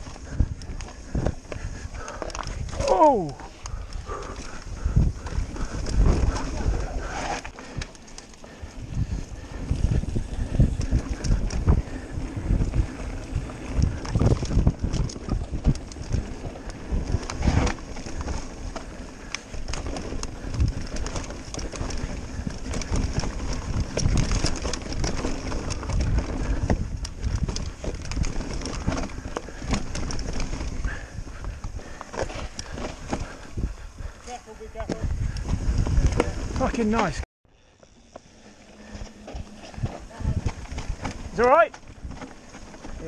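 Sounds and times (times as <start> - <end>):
wind buffeting microphone: 0.0 - 37.2, 38.0 - 43.0
tyres rumbling on dirt trail: 0.0 - 43.0
bike knocks and rattles: 9.4 - 33.4.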